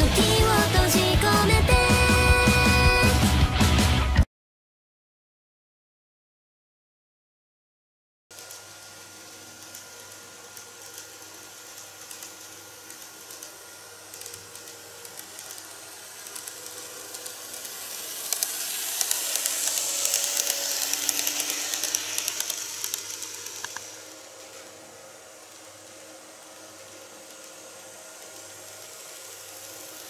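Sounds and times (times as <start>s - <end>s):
model train whirring: 8.3s - 30.0s
wheels clicking over rail joints: 14.1s - 24.2s.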